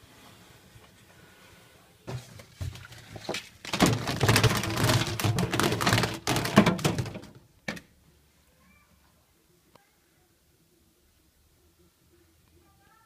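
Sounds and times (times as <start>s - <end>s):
clattering inside dryer drum: 3.6s - 7.4s.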